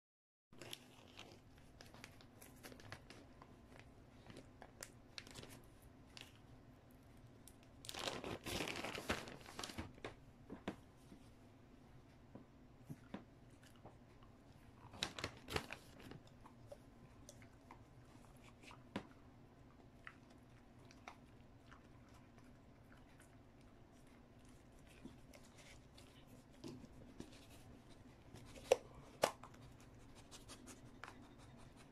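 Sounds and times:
packet crinkling and tearing: 4.3 - 5.6, 7.8 - 9.9, 14.9 - 16.2.

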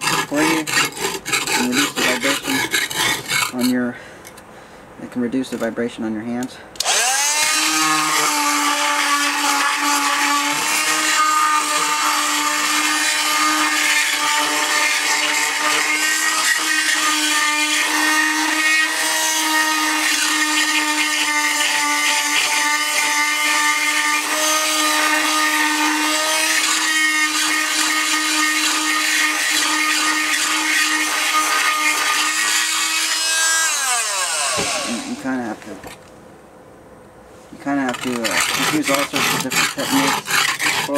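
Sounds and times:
oscillating multi-tool buzzing: 6.8 - 35.2, 37.9 - 40.9.

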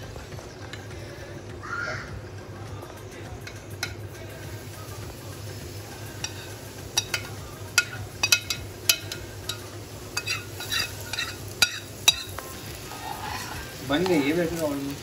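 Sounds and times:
frying sizzle: 3.2 - 15.0
spoon clinking metal pan: 6.2 - 12.5.

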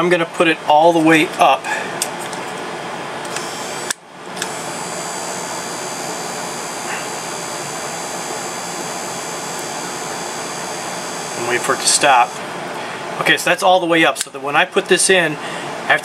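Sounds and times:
power window motor whine: 3.2 - 12.4.

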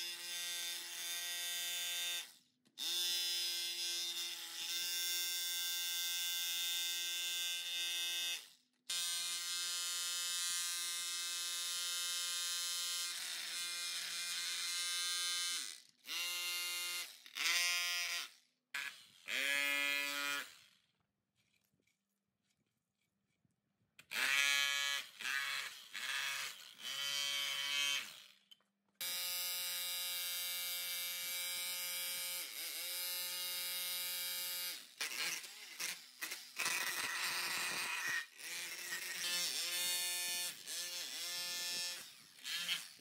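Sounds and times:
rotary hammer chipping concrete: 35.0 - 43.0.

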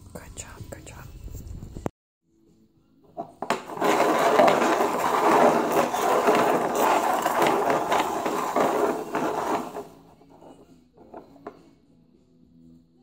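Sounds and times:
plastic cups scraping on tile floor: 3.2 - 11.6.

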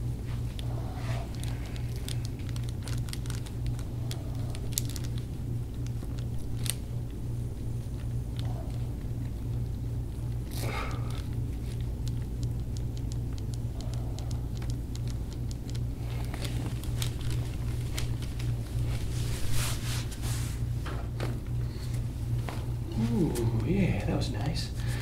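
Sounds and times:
steady low hum: 0.0 - 25.0
rustling: 14.1 - 20.7
hands rubbing skin and towel: 15.6 - 20.8.

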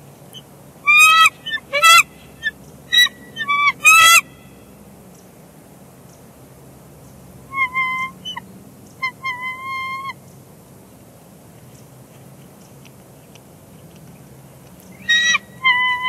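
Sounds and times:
eagles high piping calls: 0.8 - 4.4, 7.5 - 8.4, 9.0 - 10.2, 15.0 - 16.0.

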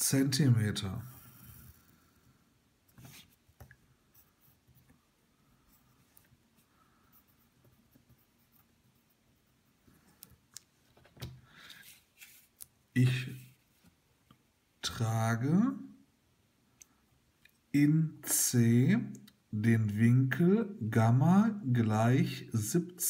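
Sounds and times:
pencil scratching on paper: 7.1 - 9.8.

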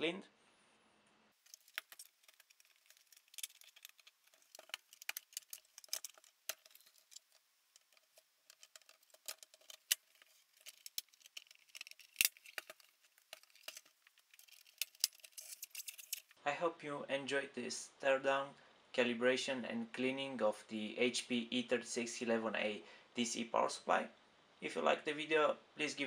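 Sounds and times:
metal panels clicking and scraping: 1.5 - 16.3.

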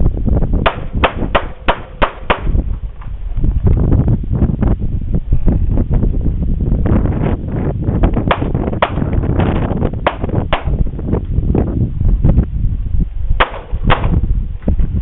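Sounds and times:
wind buffeting microphone: 0.0 - 15.0
handgun shots: 13.4 - 14.1.

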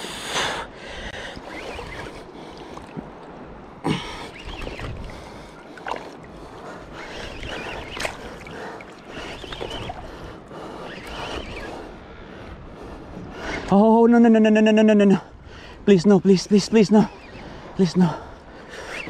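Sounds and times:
water sloshing around legs: 1.1 - 11.8.

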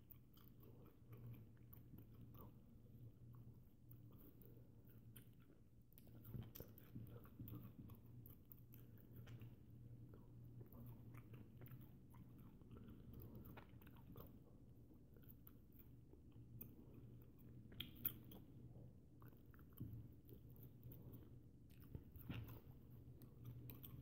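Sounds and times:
low steady hum: 0.0 - 24.0
wet chewing: 0.0 - 24.0
mouth clicks and smacks: 16.6 - 18.6.

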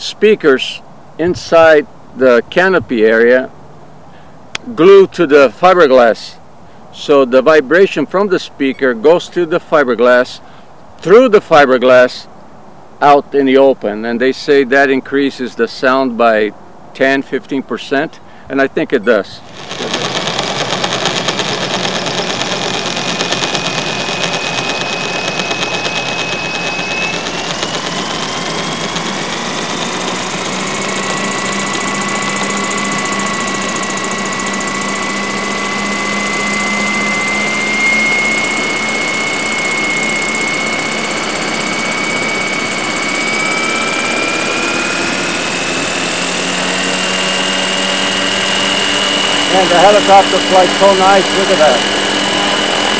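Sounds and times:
model helicopter whine rising: 1.2 - 3.5, 19.4 - 52.9
onboard sound system through speakers: 48.7 - 52.9.

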